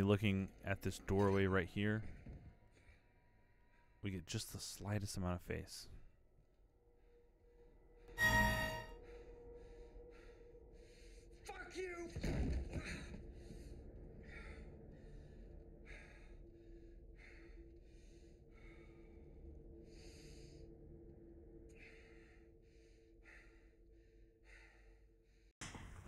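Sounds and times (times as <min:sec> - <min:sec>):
faint low hum: 0:08.8 - 0:25.4
person breathing raggedly: 0:09.0 - 0:11.5, 0:12.8 - 0:25.6.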